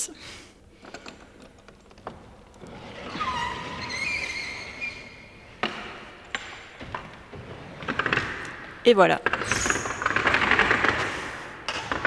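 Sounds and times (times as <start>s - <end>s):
wooden drawer scraping and squeaking: 2.0s - 8.3s, 9.4s - 12.0s.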